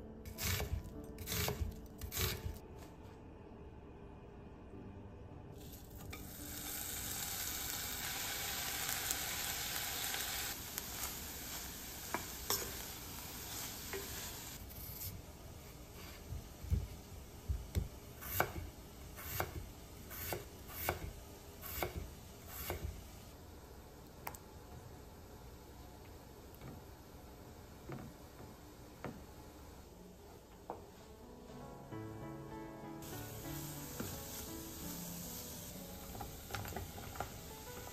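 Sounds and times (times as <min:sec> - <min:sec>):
onion sizzling in oil: 0:05.6 - 0:23.4, 0:33.0 - 0:37.9.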